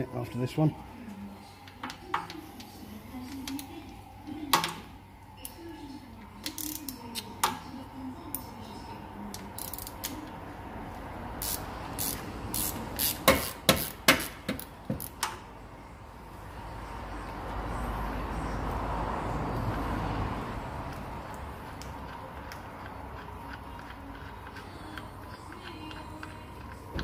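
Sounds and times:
ratchet spanner clicking on metal: 0:06.4 - 0:07.0, 0:09.3 - 0:10.3, 0:11.4 - 0:15.4.

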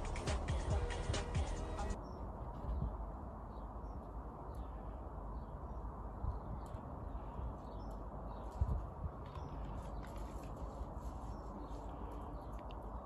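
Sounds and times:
background music: 0:00.0 - 0:02.0
outdoor background hiss: 0:00.0 - 0:13.0.

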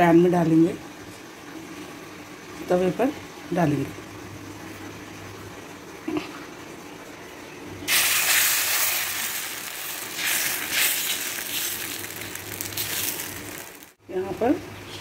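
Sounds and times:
batter sizzling on hot griddle: 0:07.9 - 0:14.0.

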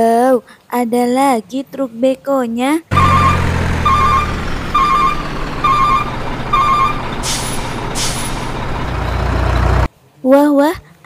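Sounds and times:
reversing alarm beeping: 0:02.9 - 0:09.7
heavy truck engine running: 0:02.9 - 0:09.9
air brake hisses: 0:07.1 - 0:08.8.

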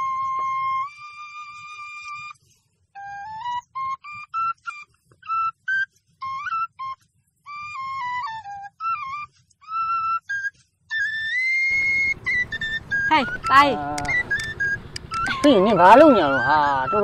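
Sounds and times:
flute melody: 0:00.0 - 0:17.0.

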